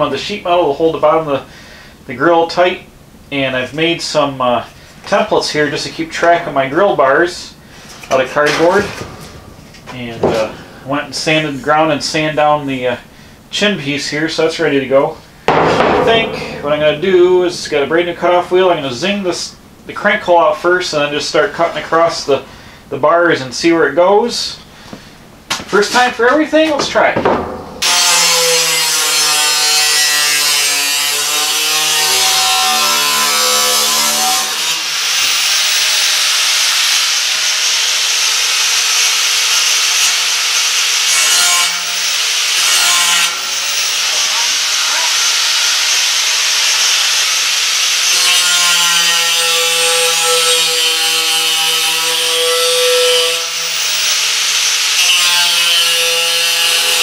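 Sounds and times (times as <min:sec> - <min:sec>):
angle grinder cutting steel: 0:27.8 - 0:57.0.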